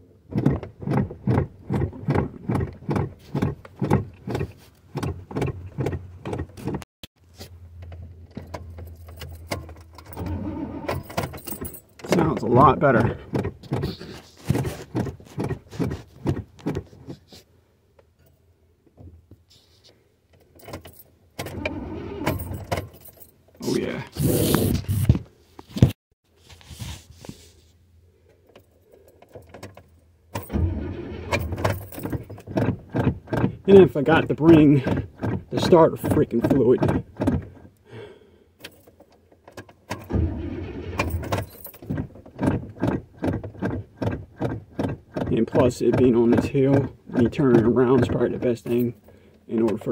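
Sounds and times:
starter cranking car engine: 0.3s - 6.8s, 30.4s - 37.8s, 39.8s - 49.9s.

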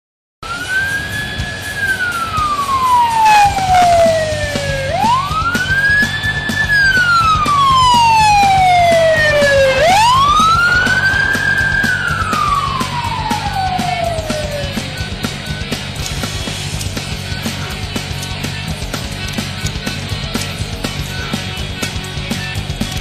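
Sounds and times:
police siren wailing: 0.4s - 18.8s.

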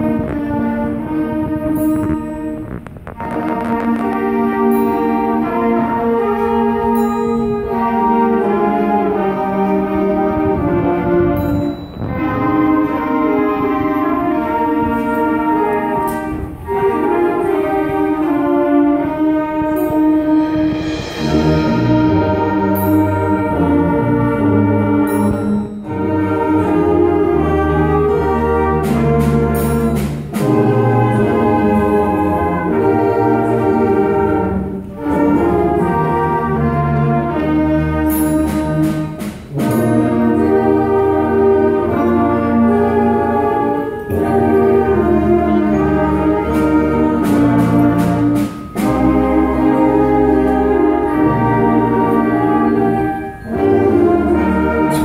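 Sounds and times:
instrumental ensemble sustained chords: 0.0s - 55.0s
struck bells ringing: 1.6s - 2.8s, 4.7s - 5.5s, 6.8s - 8.0s, 11.4s - 12.9s, 25.0s - 26.7s.

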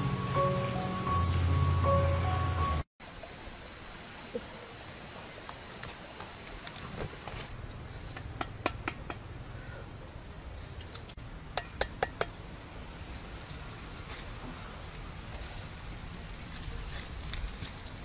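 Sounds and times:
high-pitched insect buzzing: 3.0s - 7.5s.

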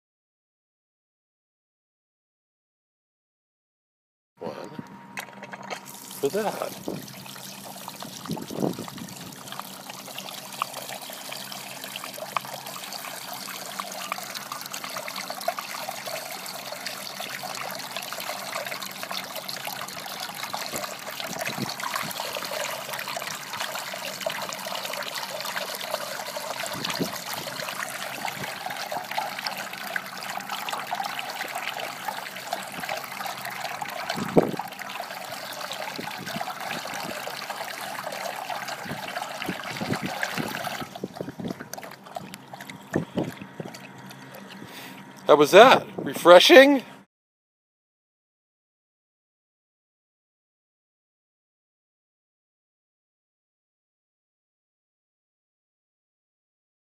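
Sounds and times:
dog lapping water: 5.2s - 45.2s
water trickling into metal bowl: 5.6s - 45.3s.

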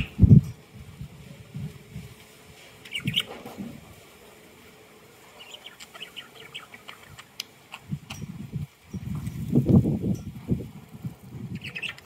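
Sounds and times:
budgerigars chirping: 2.9s - 3.3s, 5.3s - 7.4s, 11.6s - 12.0s.

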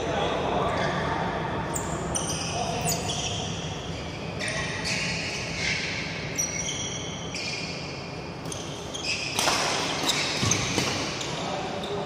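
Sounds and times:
shoes squeaking on court: 1.7s - 12.0s
racket hitting shuttlecock: 9.3s - 11.2s.

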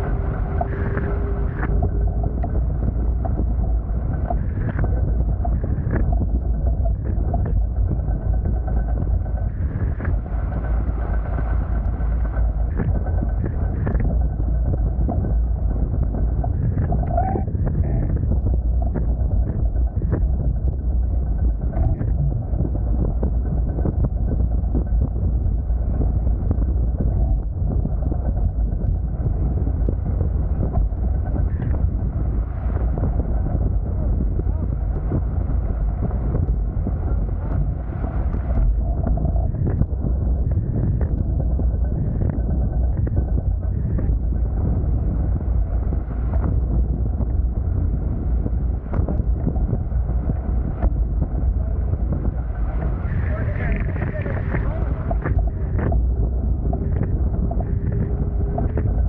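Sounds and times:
water rushing along hulls: 0.0s - 59.0s
wind buffeting microphone: 0.0s - 59.0s.

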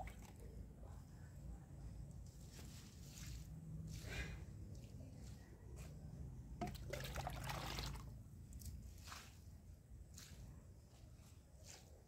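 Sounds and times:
water splashing on leaves and soil: 6.6s - 9.4s.

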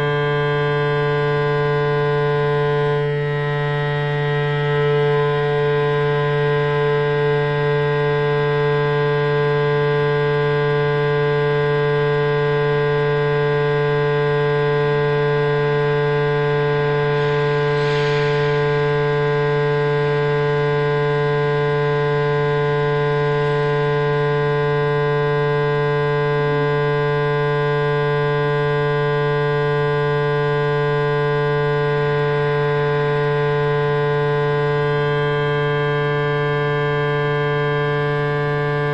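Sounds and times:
electronic drone: 0.0s - 38.9s.

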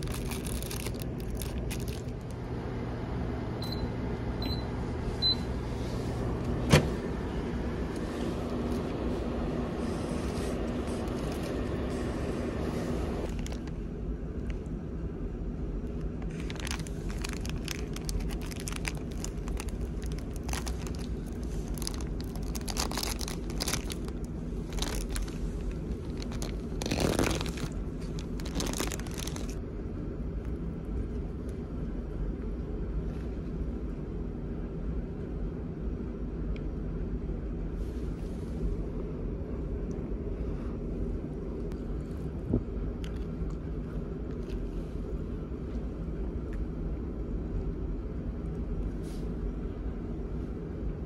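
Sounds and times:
plastic bag crinkling and tearing: 0.0s - 2.3s, 13.2s - 13.8s, 16.2s - 29.6s
low engine drone: 0.0s - 51.0s.

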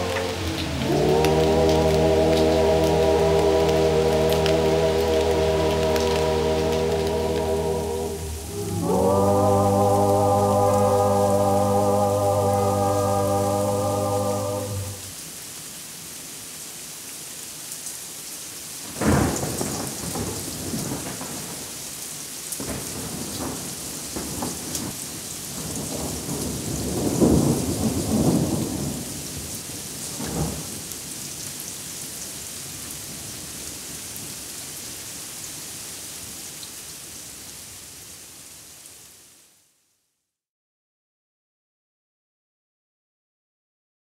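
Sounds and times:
heavy rain: 0.0s - 39.8s
thunderclap: 18.9s - 21.8s, 22.6s - 29.2s
rolling thunder rumble: 25.6s - 29.2s.

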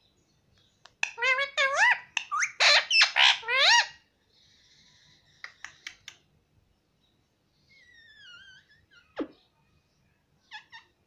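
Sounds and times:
soft bird chatter: 0.0s - 11.0s
parakeet squawking: 1.0s - 4.0s, 10.4s - 11.0s.

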